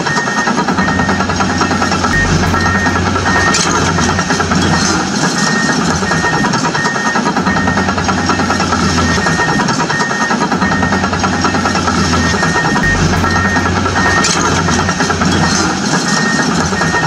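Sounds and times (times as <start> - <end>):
engine idling: 1.0 - 6.8, 10.7 - 17.0.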